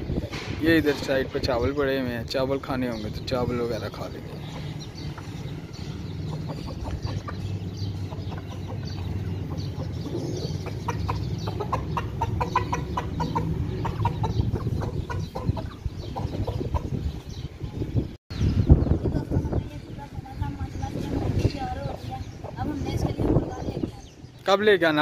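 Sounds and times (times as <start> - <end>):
chickens clucking: 2.8 - 18.0, 20.7 - 24.2.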